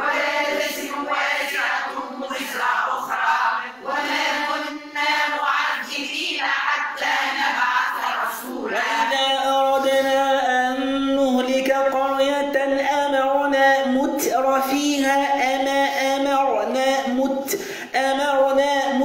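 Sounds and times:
voices chanting recitation together: 0.0s - 19.0s
man reciting: 8.6s - 19.0s.

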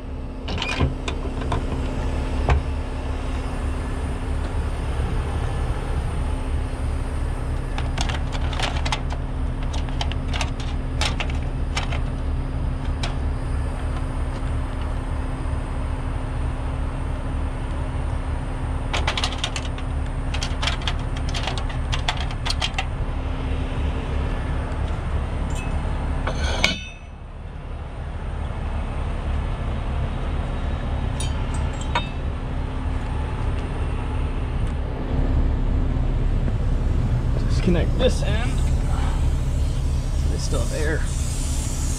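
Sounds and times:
truck diesel engine idling: 0.0s - 41.9s
metallic clinks and rattles: 25.5s - 27.1s, 31.2s - 32.2s.

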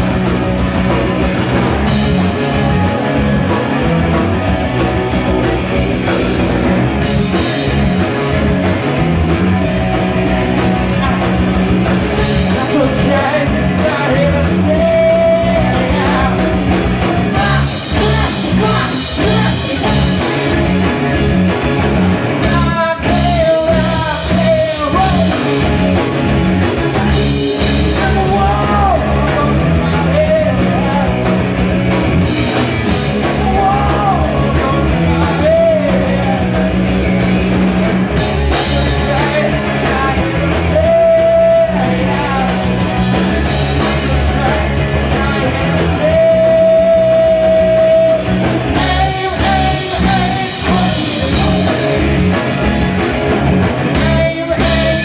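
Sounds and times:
drum kit: 0.0s - 55.0s
electric guitars: 0.0s - 55.0s
man singing: 1.5s - 4.4s, 10.4s - 21.0s, 22.3s - 37.1s, 38.4s - 52.4s, 53.8s - 55.0s.

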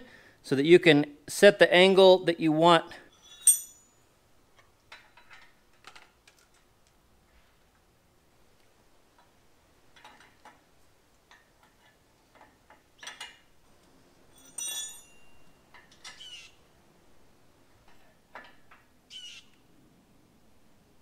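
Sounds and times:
wrench clinking on metal fittings: 3.1s - 4.0s, 14.3s - 16.2s
sharp ringing metal clink: 3.1s - 4.1s, 14.3s - 15.6s.

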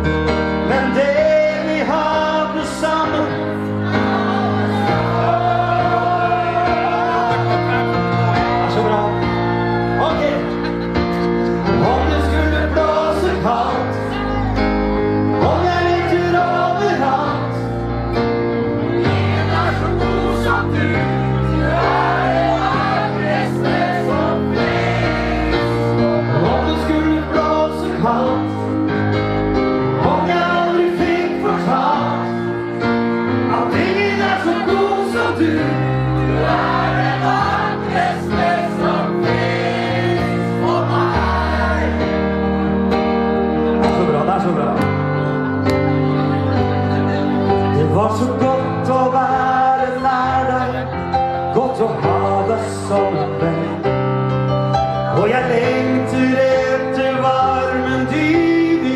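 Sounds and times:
crowd singing along: 0.0s - 43.5s, 45.7s - 58.9s
keyboard chords and bass: 0.0s - 58.9s
man singing into a microphone: 0.6s - 3.8s, 11.7s - 17.8s, 26.2s - 28.9s, 30.0s - 32.5s, 33.4s - 36.0s, 47.6s - 54.2s, 55.1s - 58.9s.

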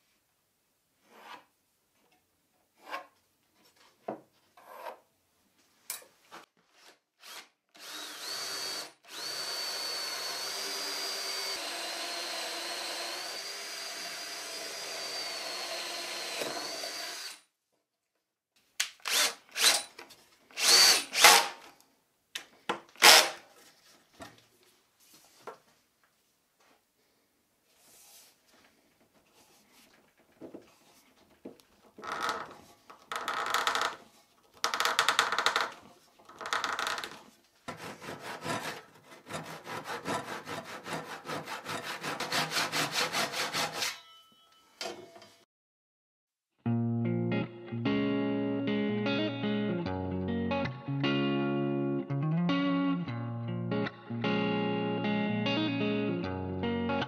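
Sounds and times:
cordless drill boring wood: 7.2s - 17.4s, 19.0s - 19.9s, 20.6s - 21.7s, 23.0s - 23.4s, 34.6s - 37.2s, 41.3s - 43.9s
pencil scratching on wood: 37.7s - 43.9s.

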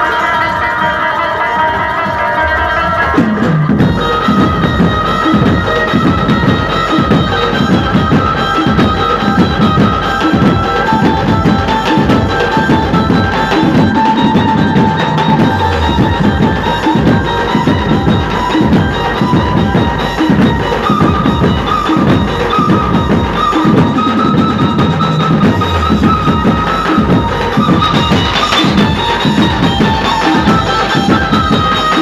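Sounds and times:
band music over loudspeaker: 0.0s - 32.0s
high held melody line: 0.0s - 32.0s
dense drumming: 1.8s - 32.0s.

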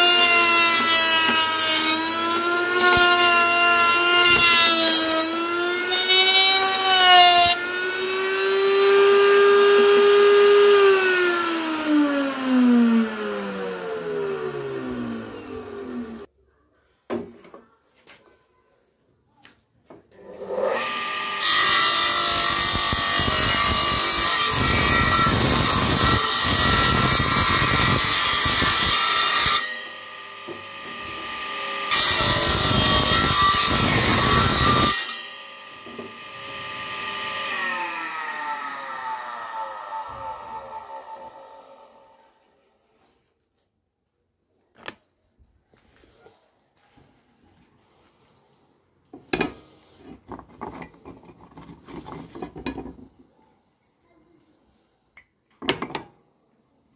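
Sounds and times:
table saw cutting wood: 0.0s - 16.3s, 20.2s - 42.7s
power tool motor whine: 5.6s - 16.3s.

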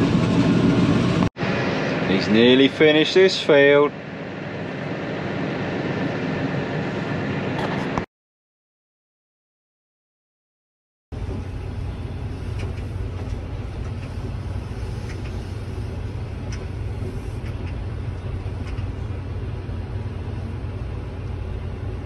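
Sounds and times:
tractor engine droning: 11.2s - 22.0s.

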